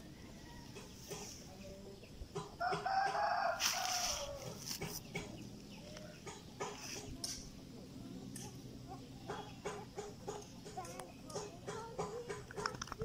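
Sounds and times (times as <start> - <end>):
rooster crowing: 0.0 - 0.9, 2.6 - 4.6.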